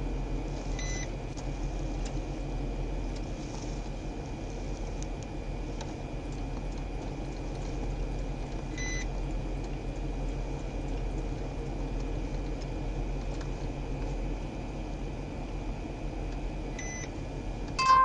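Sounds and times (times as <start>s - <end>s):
thin steady whine: 0.0s - 18.0s
short electronic beep: 17.8s - 18.0s.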